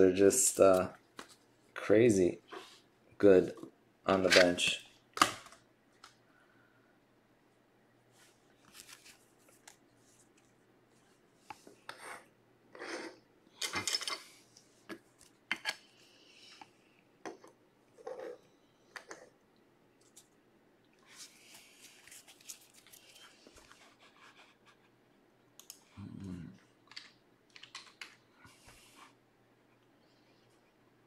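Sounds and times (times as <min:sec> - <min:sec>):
cards and plastic holders handled: 0:21.1 - 0:24.6.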